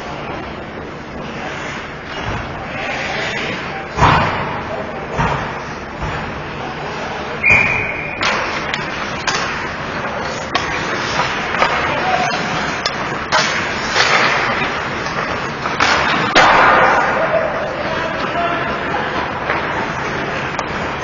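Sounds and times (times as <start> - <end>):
skates scraping ice: 0.0 - 4.0, 8.2 - 21.0
sticks clacking on puck: 8.2 - 17.1.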